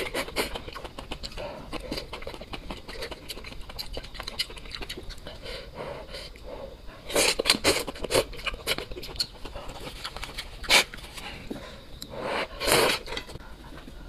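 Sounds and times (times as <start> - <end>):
wet mouth clicks: 0.0 - 5.4, 7.1 - 11.0.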